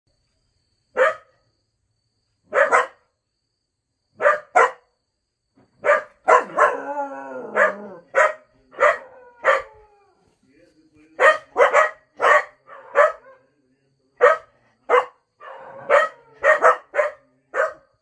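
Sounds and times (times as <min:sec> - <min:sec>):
dog barking: 0:00.9 - 0:01.4, 0:02.5 - 0:03.1, 0:04.2 - 0:04.9, 0:05.8 - 0:09.9, 0:11.2 - 0:13.5, 0:14.2 - 0:18.0
dog howling: 0:06.3 - 0:10.3, 0:15.4 - 0:16.8.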